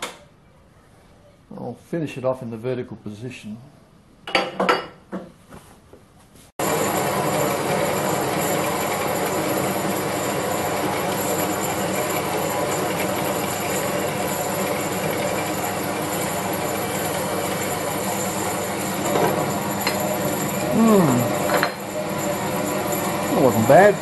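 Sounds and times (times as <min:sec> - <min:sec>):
bandsaw cutting metal: 0:06.7 - 0:24.0.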